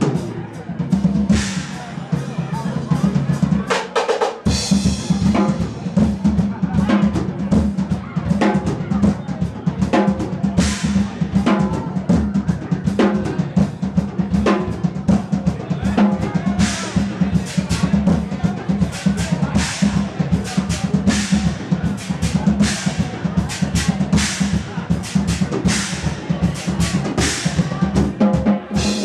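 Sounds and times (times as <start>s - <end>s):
drum kit solo: 0.0s - 29.0s.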